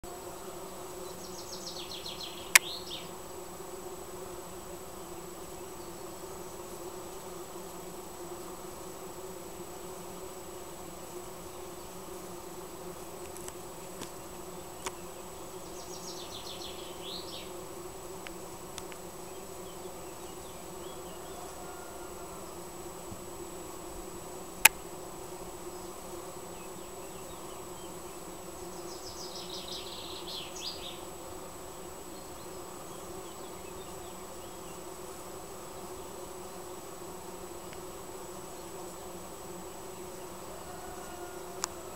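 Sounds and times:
bees humming: 0.0s - 41.9s.

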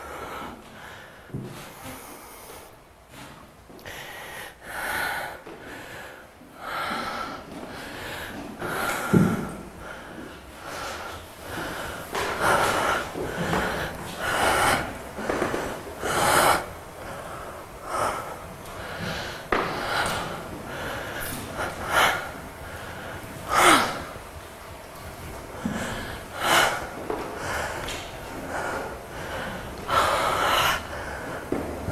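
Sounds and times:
person gasping and snorting: 3.2s - 24.2s.

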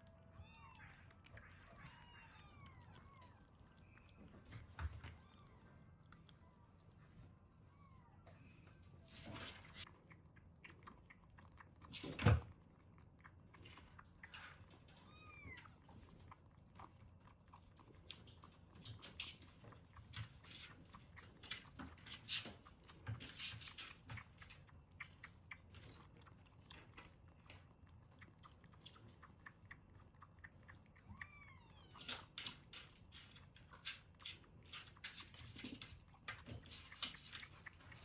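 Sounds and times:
kitten suckling wet clicks: 9.8s - 38.0s.

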